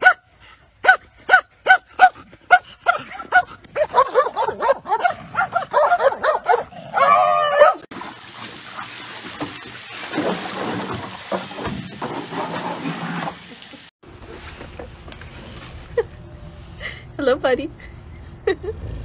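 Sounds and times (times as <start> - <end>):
dog barking and yapping: 0.0 - 0.2, 0.8 - 7.9.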